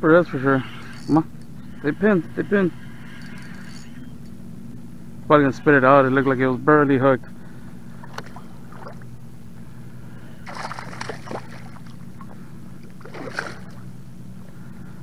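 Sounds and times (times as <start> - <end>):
steady low hum: 0.0 - 15.0
fish thrashing and splashing: 10.4 - 13.8.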